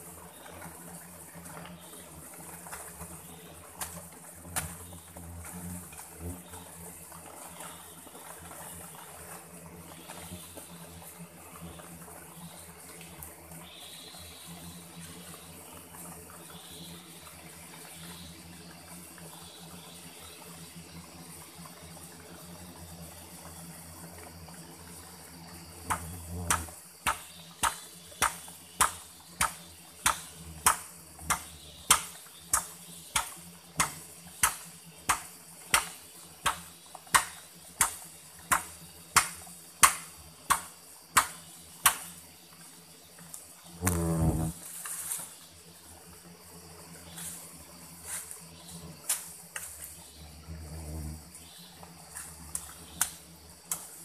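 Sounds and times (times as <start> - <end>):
low background noise: 0.0 - 54.0
digging tool striking soil: 25.9 - 42.1.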